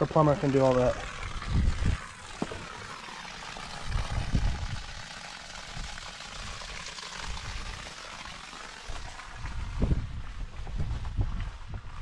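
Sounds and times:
water splashing onto grass: 0.0 - 11.6
wind buffeting microphone: 1.2 - 2.6, 3.8 - 4.9, 9.4 - 12.0.

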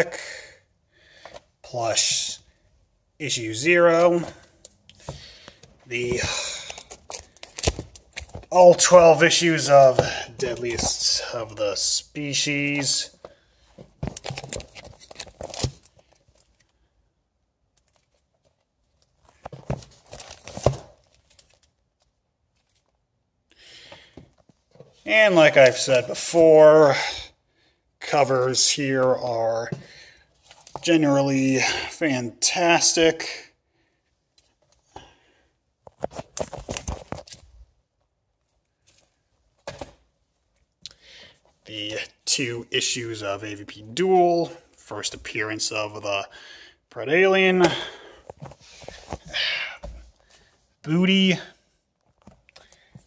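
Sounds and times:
comic books rustling: 3.3 - 16.9, 17.6 - 23.0, 28.1 - 31.1, 35.8 - 37.8, 38.4 - 46.1, 47.0 - 53.0.

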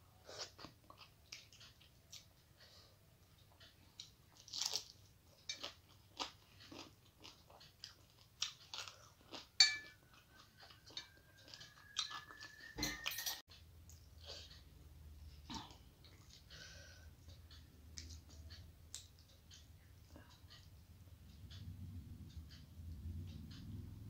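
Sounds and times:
chewing with wet clicks: 0.4 - 12.8, 15.5 - 20.7.

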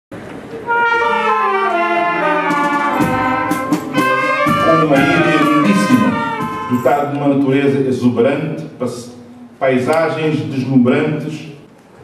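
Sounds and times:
brass band playing a march: 0.6 - 7.2
sharp percussion hits: 1.1 - 7.1.

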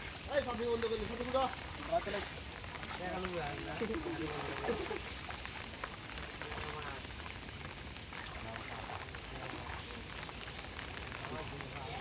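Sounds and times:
water splashing and crackling: 0.0 - 12.0
men's voices: 0.1 - 5.3.

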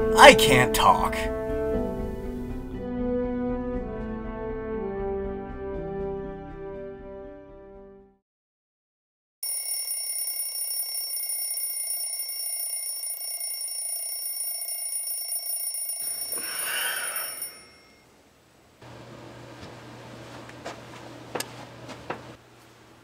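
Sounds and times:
phone alarm ringing: 9.4 - 18.0.

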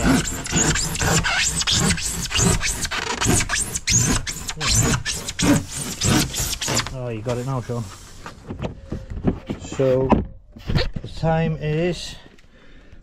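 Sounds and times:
handsaw cutting insulation board: 0.0 - 8.2.

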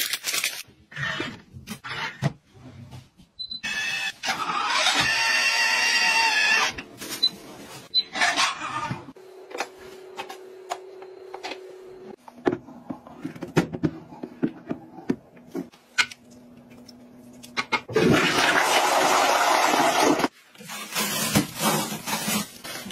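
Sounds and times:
toilet flushing: 17.9 - 20.3.

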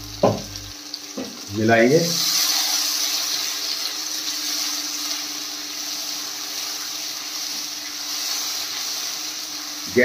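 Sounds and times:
low hum: 0.0 - 0.8
oil sizzling in a pan: 0.0 - 10.0.

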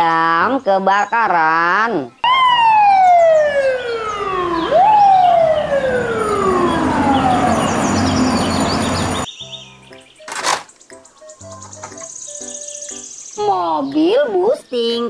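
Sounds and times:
fire truck siren wailing: 2.2 - 9.3
street traffic: 2.2 - 9.3.

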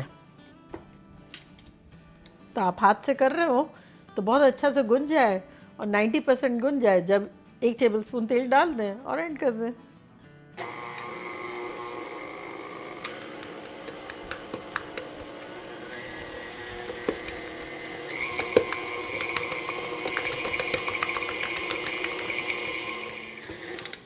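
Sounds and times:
stand mixer motor whine: 10.6 - 24.0.

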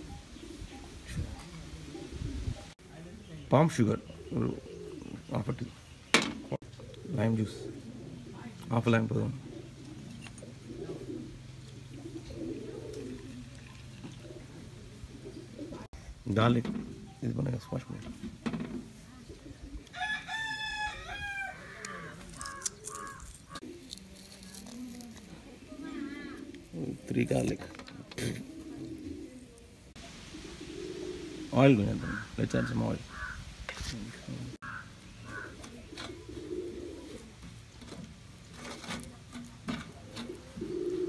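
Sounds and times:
dove cooing: 0.0 - 2.8, 3.8 - 15.9, 18.1 - 20.0, 20.9 - 33.4, 34.2 - 41.0
rooster crowing: 19.9 - 23.2.

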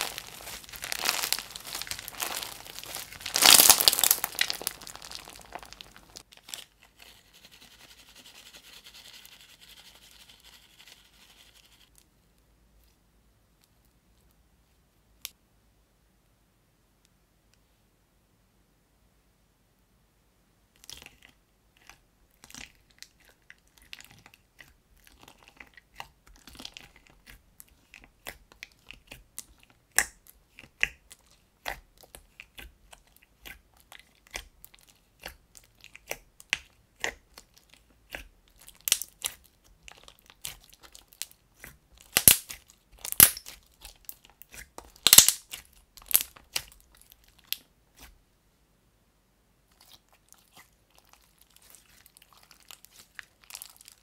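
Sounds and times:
slime popping and squelching: 0.0 - 6.6, 20.8 - 48.2, 49.7 - 54.0.

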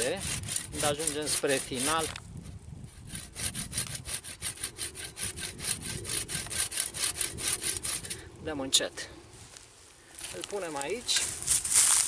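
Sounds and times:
hand saw cutting wood: 0.0 - 2.2, 2.8 - 8.2.

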